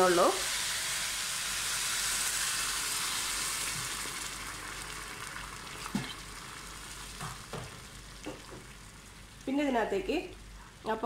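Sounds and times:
rice sizzling in hot oil: 0:00.0 - 0:10.6
water pouring into pan: 0:00.4 - 0:09.4.

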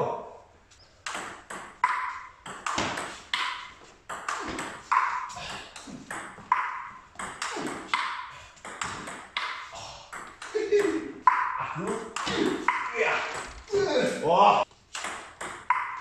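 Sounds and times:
table tennis ball clicking: 0:06.1 - 0:10.6, 0:14.9 - 0:16.0.

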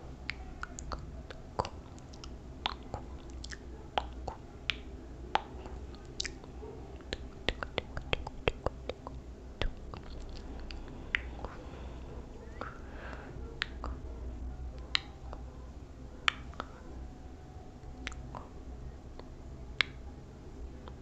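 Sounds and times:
low steady hum: 0:00.0 - 0:21.0
wet mouth clicks and lip smacks: 0:00.3 - 0:11.6, 0:12.5 - 0:12.8, 0:13.6 - 0:14.1, 0:16.3 - 0:16.8, 0:18.0 - 0:18.5.

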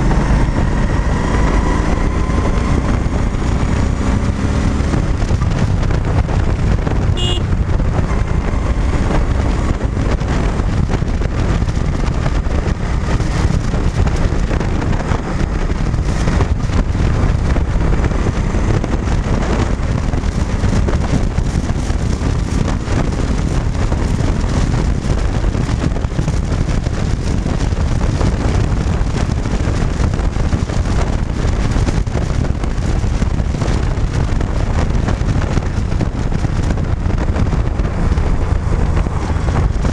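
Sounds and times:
motorcycle engine running: 0:00.0 - 0:39.9
wind rushing over microphone: 0:00.0 - 0:39.9.

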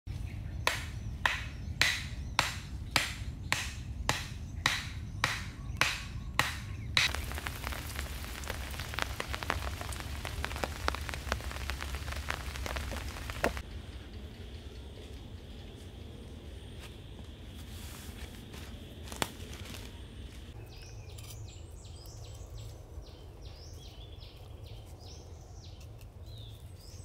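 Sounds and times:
rain pattering on a tarp: 0:07.0 - 0:13.6.

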